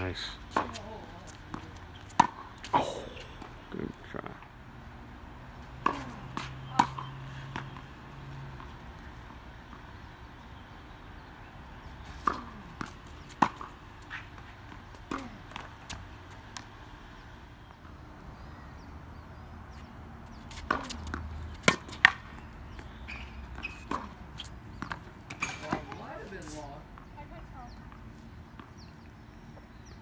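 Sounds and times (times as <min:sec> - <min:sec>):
tennis balls struck by rackets: 0:00.4 - 0:03.7, 0:05.5 - 0:17.0, 0:20.3 - 0:29.0
tennis ball bouncing on hard court: 0:00.5 - 0:03.6, 0:05.6 - 0:09.0, 0:11.9 - 0:16.8, 0:20.3 - 0:27.1.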